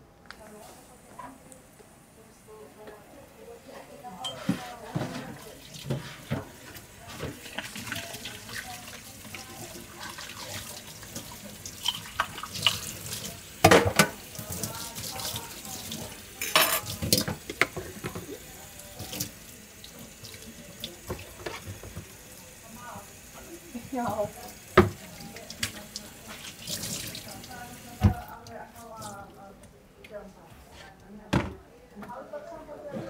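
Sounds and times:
dishes knocking against sink: 13.6 - 14.2
tap running into steel sink: 24.7 - 25.0.

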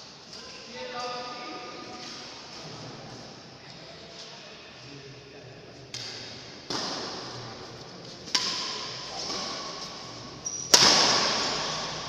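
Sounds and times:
racket hitting shuttlecock: 6.0 - 7.4, 8.2 - 12.0.

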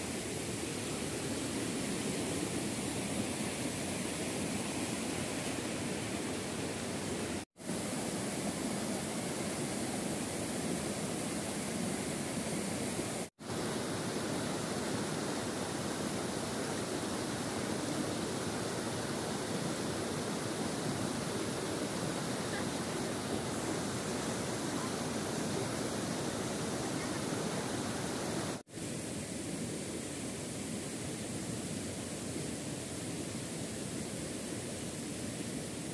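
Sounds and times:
stream rushing over stones: 0.0 - 35.9.

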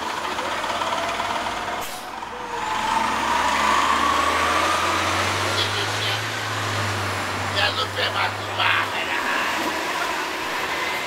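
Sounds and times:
street traffic noise: 0.0 - 11.0.

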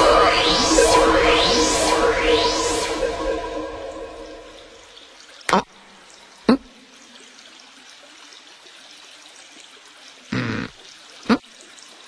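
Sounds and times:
trickle of running water: 5.0 - 12.0.

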